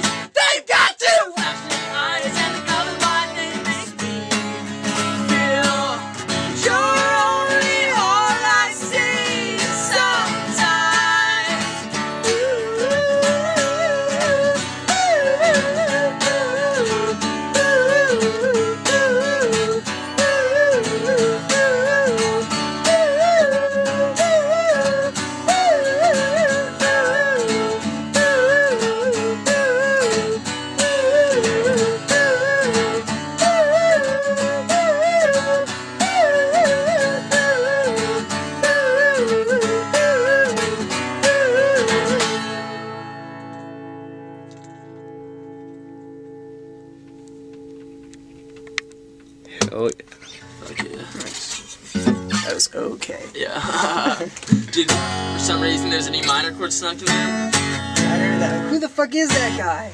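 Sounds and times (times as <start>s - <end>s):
person singing wordless melody: 0.0s - 43.1s
acoustic guitar strumming: 0.0s - 59.9s.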